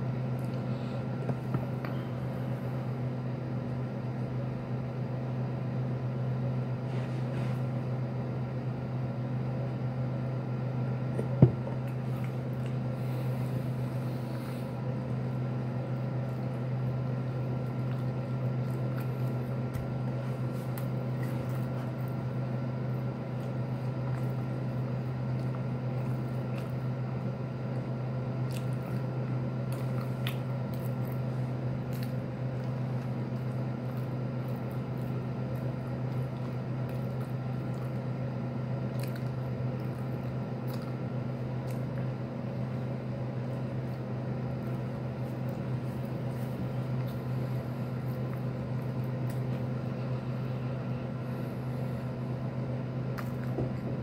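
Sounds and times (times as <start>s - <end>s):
steady low hum: 0.0s - 54.0s
person biting and chewing: 16.2s - 38.2s, 38.8s - 42.2s, 43.4s - 50.2s, 53.0s - 53.9s.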